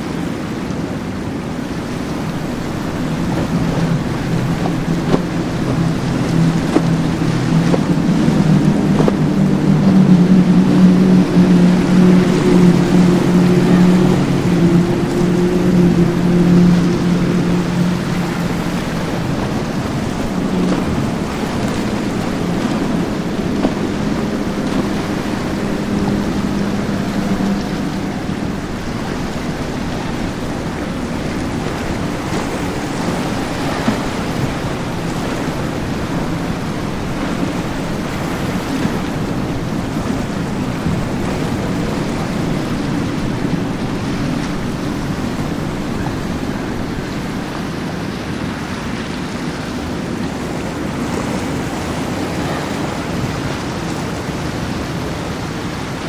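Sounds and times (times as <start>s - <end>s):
outboard motors droning: 0.0s - 56.0s
waves and boat wake: 0.0s - 56.0s.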